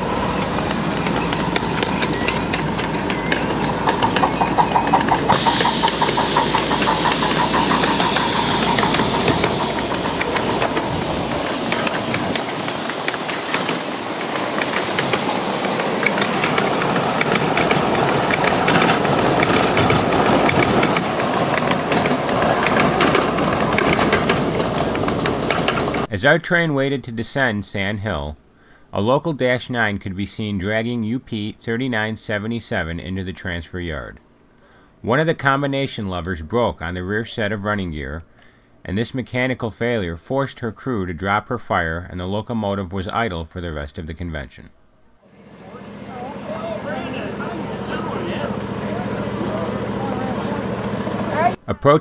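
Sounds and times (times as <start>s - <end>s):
steam hissing: 0.0s - 26.1s, 45.3s - 51.6s
wheels clicking over rails: 0.0s - 26.1s, 45.3s - 51.6s.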